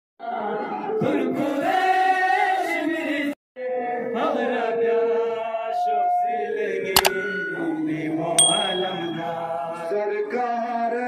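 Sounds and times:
men chanting a lament: 0.2s - 6.8s.

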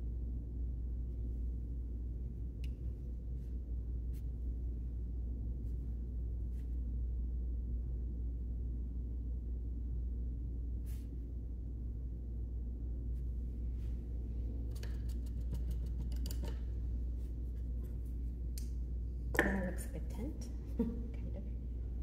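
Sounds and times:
low room hum: 0.0s - 22.0s
paintbrush clicks and rustles: 14.7s - 18.8s.

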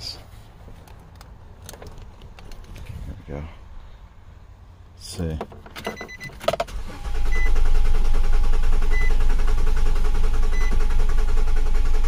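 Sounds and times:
car engine cranking: 0.8s - 3.0s, 5.4s - 12.0s
loud fuel pump running: 6.7s - 12.0s.

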